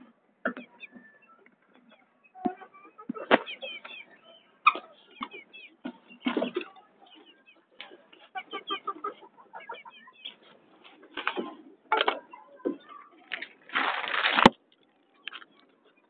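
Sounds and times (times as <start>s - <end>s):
hen clucking and chirping: 0.5s - 13.0s.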